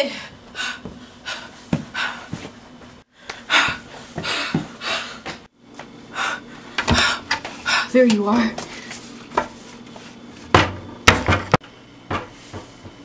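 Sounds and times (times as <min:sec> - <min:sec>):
person breathing hard: 0:00.0 - 0:02.5, 0:03.1 - 0:05.5, 0:06.1 - 0:08.0.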